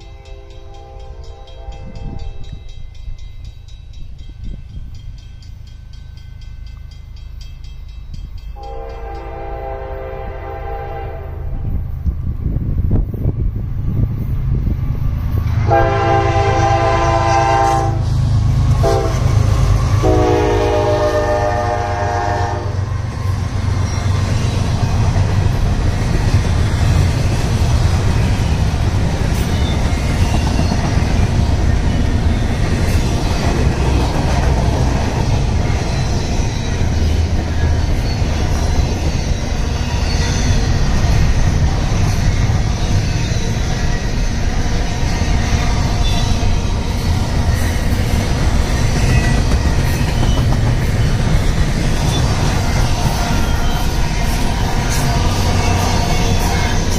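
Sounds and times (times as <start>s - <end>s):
locomotive air horn chord: 0.0s - 2.0s, 8.6s - 11.7s, 15.6s - 18.2s, 18.8s - 22.8s
freight train rumbling: 0.0s - 56.9s.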